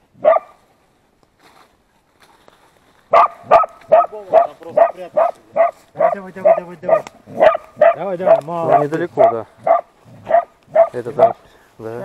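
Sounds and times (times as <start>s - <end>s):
dogs barking: 0.2s - 0.6s, 3.1s - 11.4s.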